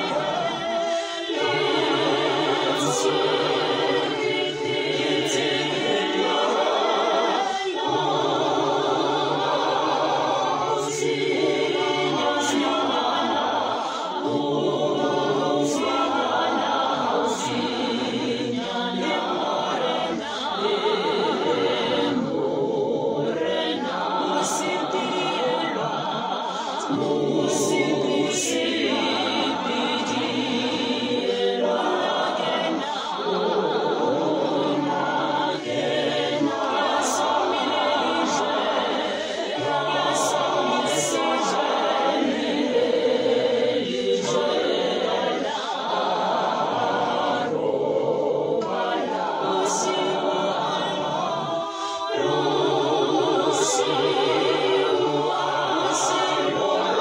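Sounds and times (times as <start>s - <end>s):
voices singing a hymn: 0.0s - 57.0s
singers breathing: 0.8s - 1.2s, 51.5s - 52.1s.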